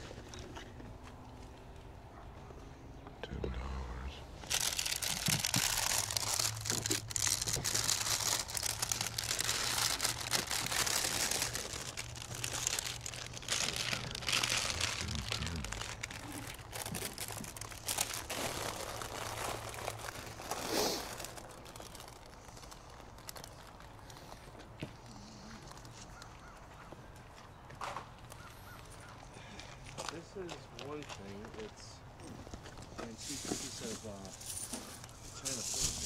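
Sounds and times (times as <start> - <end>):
crinkling at microphone: 4.4 - 26.9.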